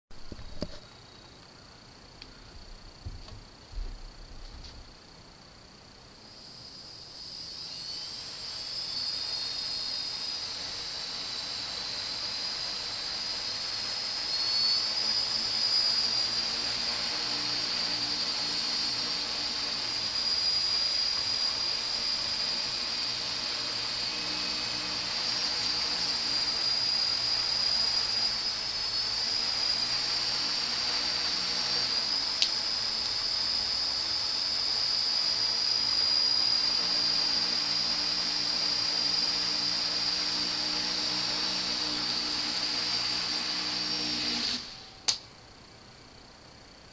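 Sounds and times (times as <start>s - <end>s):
quadcopter motors whining: 6.0s - 45.2s
sharp tick: 32.4s - 33.2s, 45.0s - 45.3s.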